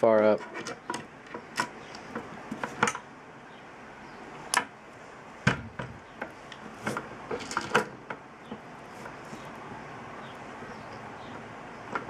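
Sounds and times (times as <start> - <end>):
clicks and knocks of metal mount: 0.4 - 3.0.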